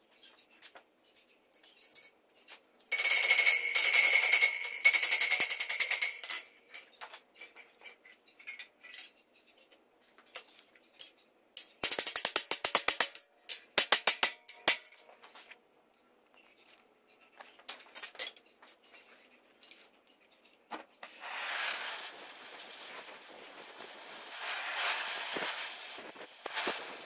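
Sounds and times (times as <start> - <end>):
gas torch hissing: 21.0 - 27.0.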